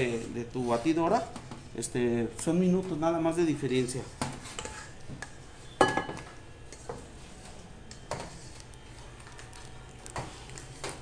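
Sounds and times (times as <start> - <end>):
spatula scraping metal bowl: 4.4 - 5.0.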